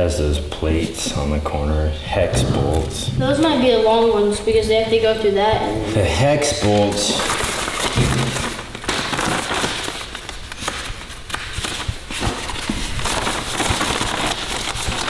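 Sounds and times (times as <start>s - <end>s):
paper rustling and crinkling: 5.9s - 15.0s.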